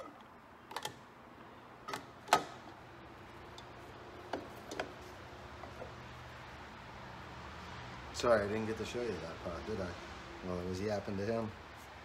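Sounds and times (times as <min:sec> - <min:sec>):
plastic parts clicking together: 0:00.0 - 0:01.0.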